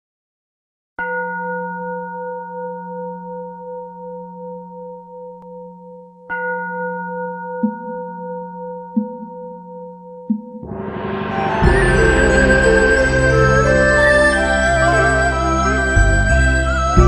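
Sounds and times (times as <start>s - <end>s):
bowl bell ringing: 1.0s - 17.0s.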